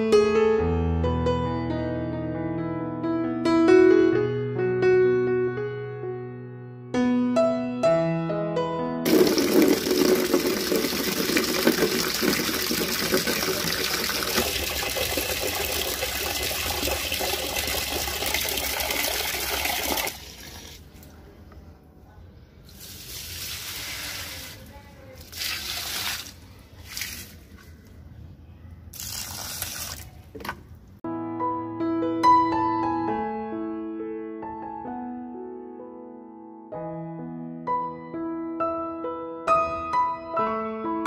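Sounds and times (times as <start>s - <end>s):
tap water gushing into bucket: 9.1s - 21.1s, 22.7s - 27.7s, 28.9s - 30.4s
water poured onto plants: 9.1s - 21.2s, 22.6s - 28.0s, 28.9s - 30.3s.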